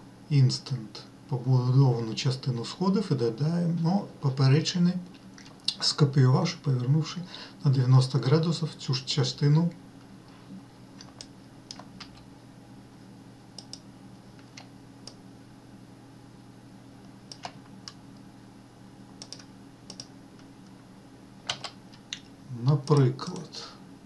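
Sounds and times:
low steady hum: 0.0 - 24.0
keyboard and mouse clicks: 11.0 - 12.3, 13.6 - 13.8, 17.3 - 18.0, 19.2 - 20.1, 21.5 - 23.5.

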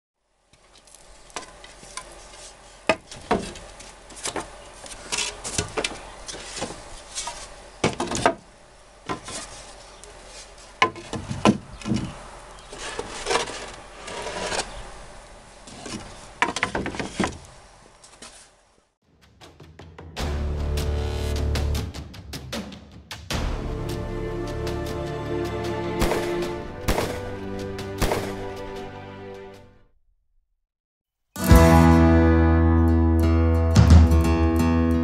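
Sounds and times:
boards scraping against each other: 0.8 - 8.5, 9.1 - 18.6
wooden boards knocking together: 7.8 - 8.5, 10.8 - 12.2, 15.9 - 17.4.

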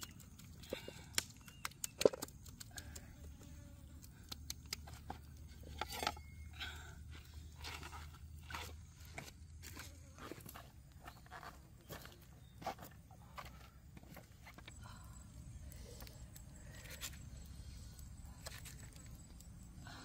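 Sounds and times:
hands clicking and scraping: 0.0 - 3.2, 3.9 - 6.0
footsteps on rocks: 7.7 - 14.6.

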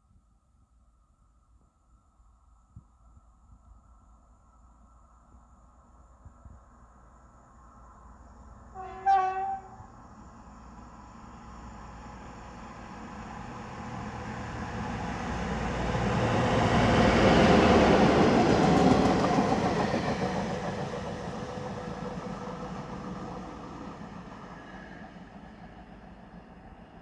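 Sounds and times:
diesel locomotive engine: 7.0 - 27.0
train wheels on rails: 8.8 - 27.0.

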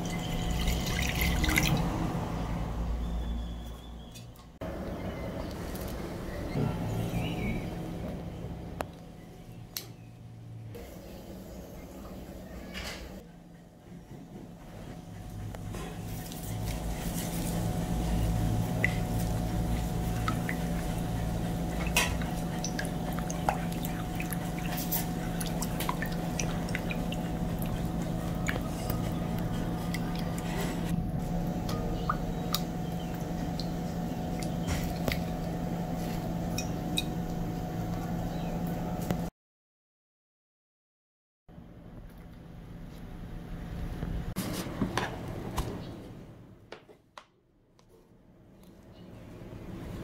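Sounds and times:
steady low hum: 13.2 - 39.3
liquid swishing in a bowl: 16.0 - 30.9.

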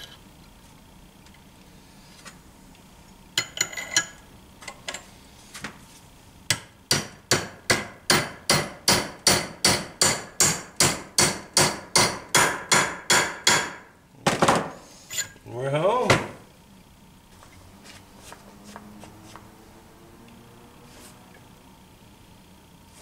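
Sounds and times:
hammer striking metal pipe: 6.5 - 13.8.

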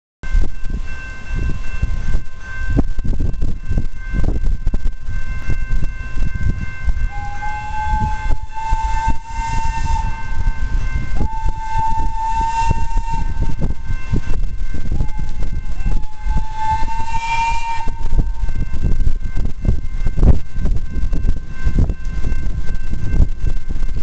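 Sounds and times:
locomotive rumble: 0.2 - 24.0
train whistle: 6.7 - 20.2.

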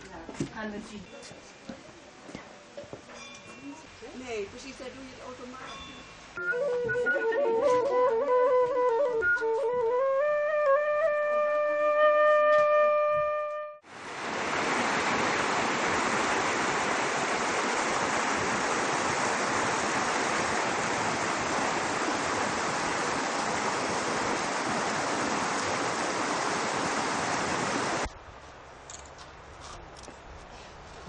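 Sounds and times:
stream rushing over stones: 13.9 - 28.1.

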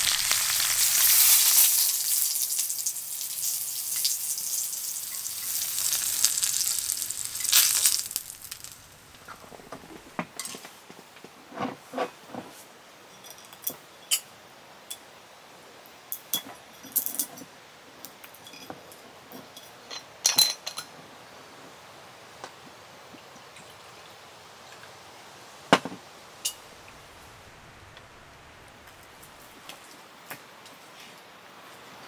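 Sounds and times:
dishes and utensils clinking: 19.4 - 20.9.

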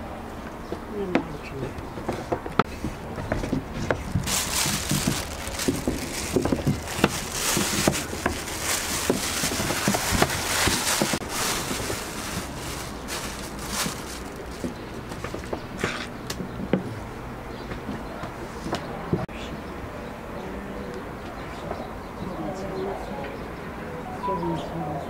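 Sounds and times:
plastic bag crinkling: 4.0 - 15.5.

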